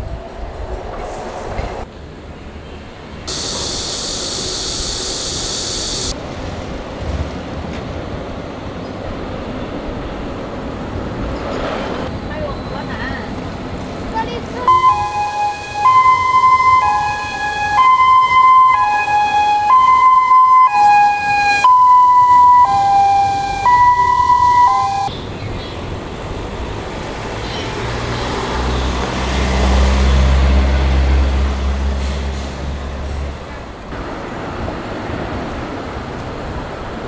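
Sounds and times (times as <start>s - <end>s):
street traffic: 0.0s - 37.0s
ambulance hi-lo siren: 3.3s - 6.2s, 14.6s - 25.1s.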